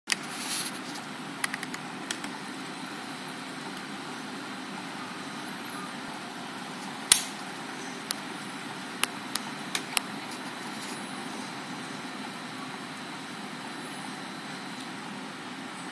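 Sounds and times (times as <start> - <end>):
aquarium filter humming: 0.1 - 15.9
sharp clicks: 1.4 - 2.4, 7.1 - 7.4.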